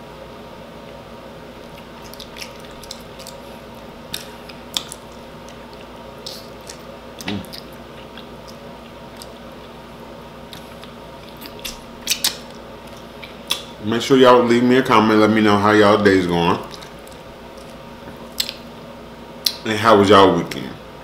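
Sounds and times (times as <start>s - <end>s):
steady background hum: 0.0s - 21.0s
wet chewing and smacking: 1.6s - 9.8s, 10.4s - 13.8s, 16.6s - 18.8s
person humming mm: 7.2s - 7.6s.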